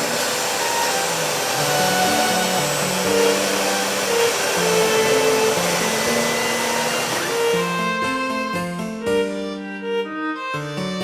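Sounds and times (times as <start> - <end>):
cnc router spindle milling wood: 0.0 - 8.4
slow background music: 0.3 - 11.0.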